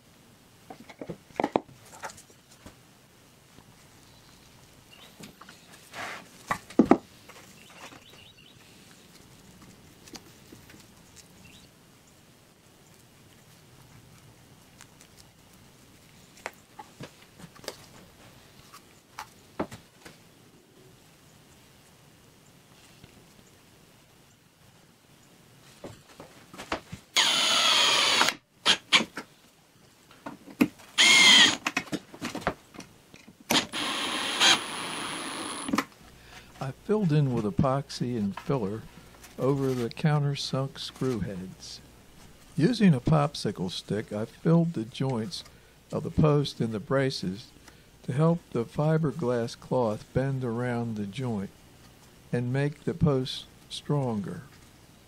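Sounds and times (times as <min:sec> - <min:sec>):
electric drill driving screws: 0:27.2 - 0:29.0, 0:31.0 - 0:31.7, 0:33.5 - 0:35.8.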